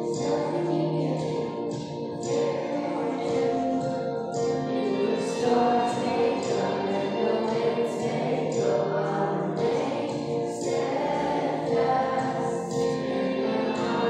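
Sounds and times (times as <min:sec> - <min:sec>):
girl and woman singing: 0:04.7 - 0:14.0.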